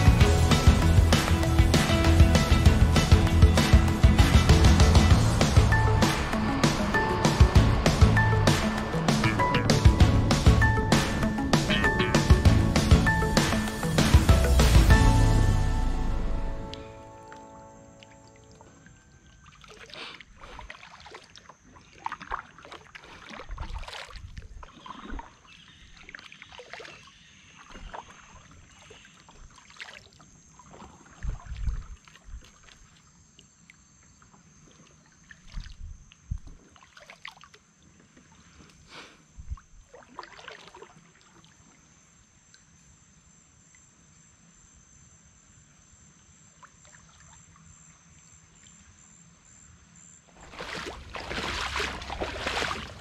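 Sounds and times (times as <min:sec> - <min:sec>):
paddle splashes in water: 0:18.0 - 0:33.1, 0:34.3 - 0:38.5, 0:39.5 - 0:41.6, 0:50.4 - 0:53.0
high insect drone: 0:41.4 - 0:53.0.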